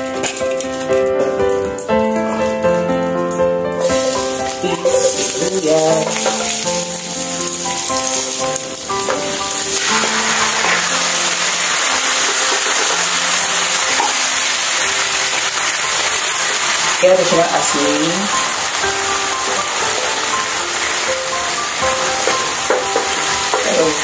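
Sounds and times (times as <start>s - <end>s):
background music: 0.0s - 24.0s
food sizzling in a pan: 0.0s - 24.0s
wooden spatula stirring: 3.8s - 17.7s.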